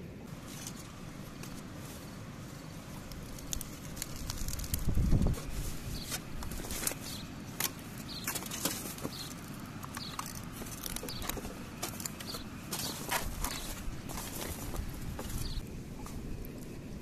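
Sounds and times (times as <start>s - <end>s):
aluminium foil crinkling: 3.0s - 7.2s.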